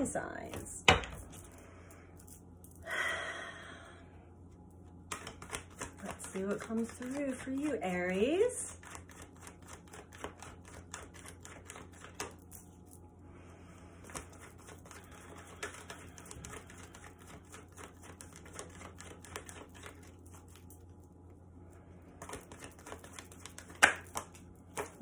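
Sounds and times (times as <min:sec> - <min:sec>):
cards being shuffled: 0:05.0 - 0:12.8, 0:14.0 - 0:21.0, 0:22.1 - 0:25.0
card snap: 0:05.1 - 0:06.4, 0:22.2 - 0:25.0.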